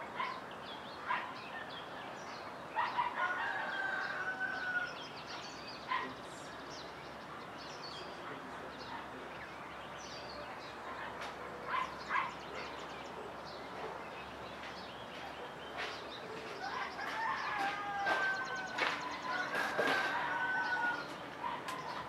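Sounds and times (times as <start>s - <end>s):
birds chirping: 0.0s - 22.0s
dog barking: 0.2s - 0.4s, 1.1s - 1.4s, 2.8s - 3.4s, 5.9s - 6.2s, 10.8s - 14.1s, 21.4s - 22.0s
rooster crowing: 3.2s - 5.0s, 16.6s - 21.2s.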